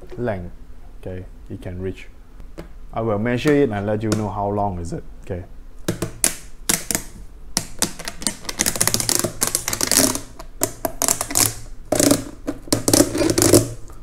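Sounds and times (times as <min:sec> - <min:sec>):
plastic hose clicking and crackling: 0:05.9 - 0:13.8.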